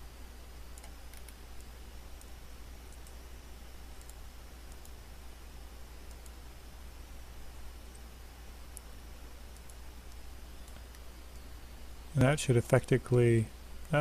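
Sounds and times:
low electrical hum and hiss: 0:00.0 - 0:14.0
computer mouse clicking: 0:00.7 - 0:02.3, 0:02.9 - 0:03.2, 0:04.0 - 0:05.0, 0:06.0 - 0:06.4, 0:08.7 - 0:08.9, 0:09.5 - 0:11.5.

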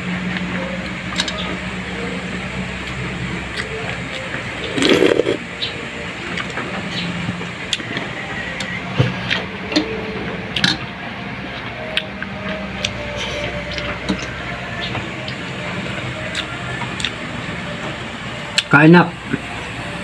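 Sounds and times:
steady low hum: 0:00.0 - 0:20.0
chewing and lip smacking: 0:16.3 - 0:17.2.

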